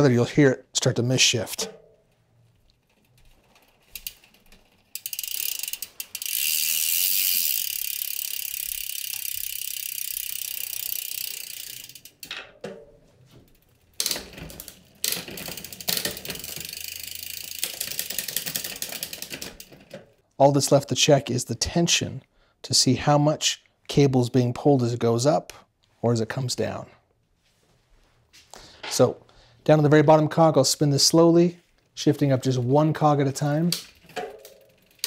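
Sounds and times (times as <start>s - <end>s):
bike chain whirring rattle: 2.1s - 12.3s, 13.4s - 20.2s, 33.9s - 35.0s
gear clicks: 2.1s - 12.3s, 13.5s - 20.2s
fast mechanical ticking: 4.0s - 12.2s.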